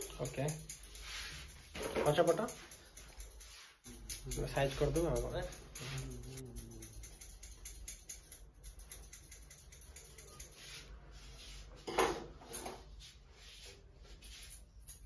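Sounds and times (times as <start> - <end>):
brushing rustle: 0.7 - 3.9, 10.1 - 11.8, 12.8 - 14.7
straight razor cutting hair: 3.9 - 8.1.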